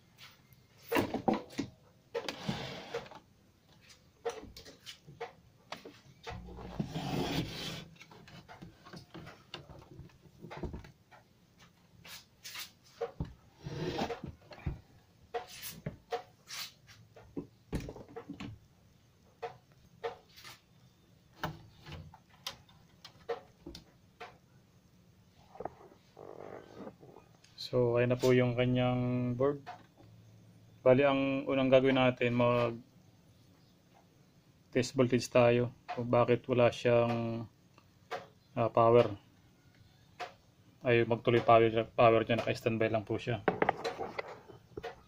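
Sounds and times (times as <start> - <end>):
hard plastic scraping and clicking: 43.5 - 45.0.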